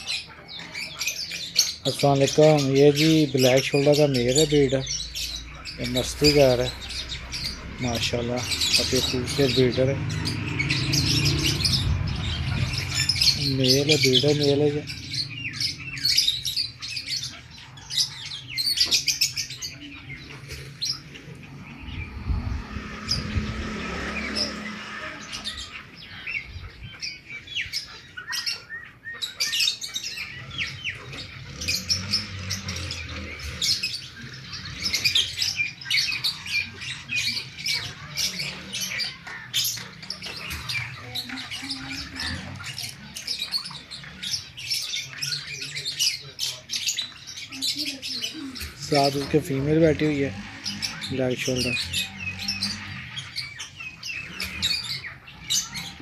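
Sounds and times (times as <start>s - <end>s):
small birds chirping: 0.0s - 56.0s
low rumble: 5.0s - 17.0s, 20.0s - 27.0s.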